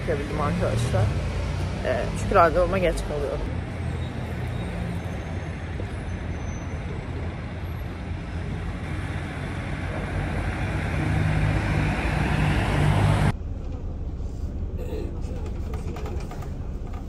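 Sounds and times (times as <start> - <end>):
large vehicle engine hum: 0.0 - 17.0
road traffic noise: 0.0 - 17.0.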